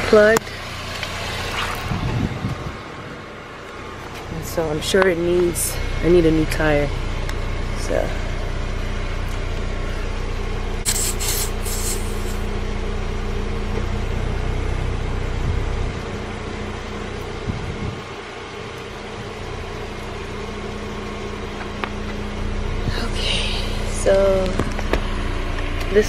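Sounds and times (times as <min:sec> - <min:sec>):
steady low hum: 0:01.6 - 0:26.0
air hissing from tyre valve: 0:10.8 - 0:12.5.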